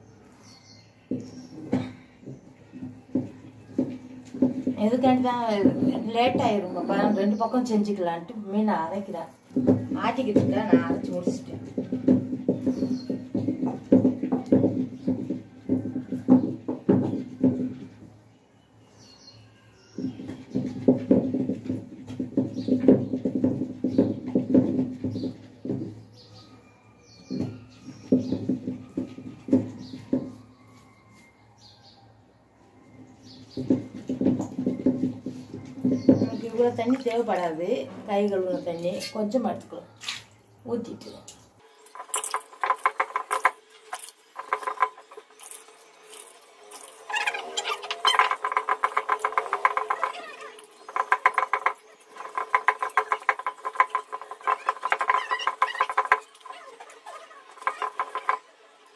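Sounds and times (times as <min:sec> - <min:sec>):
stone roller knocking on stone slab: 0:01.1 - 0:07.2, 0:09.5 - 0:18.1, 0:20.0 - 0:26.0, 0:27.3 - 0:30.3, 0:33.3 - 0:37.6, 0:41.9 - 0:58.6
stone grinding on stone: 0:41.9 - 0:58.6.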